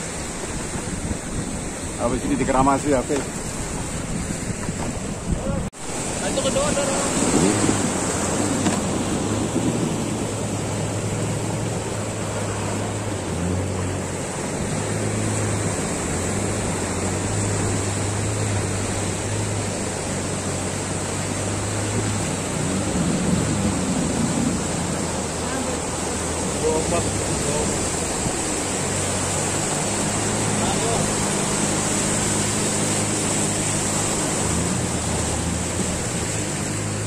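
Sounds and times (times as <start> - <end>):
wind on microphone: 0.0 - 25.4
boat motor droning: 0.0 - 37.0
breaking surf: 0.0 - 37.0.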